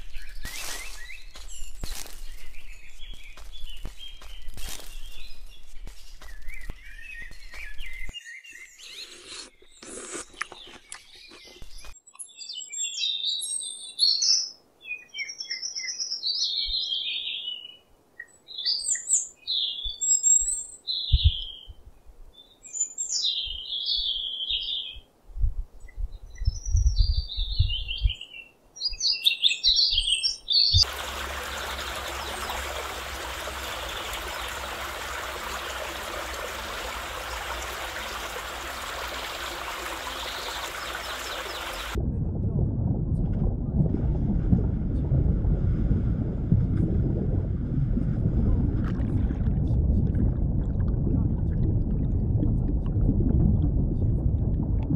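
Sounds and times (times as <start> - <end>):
high chirping calls: 29.2 - 42.0.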